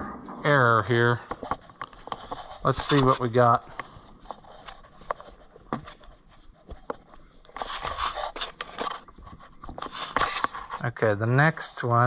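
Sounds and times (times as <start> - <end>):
wire rustling and scraping: 0.8 - 10.9.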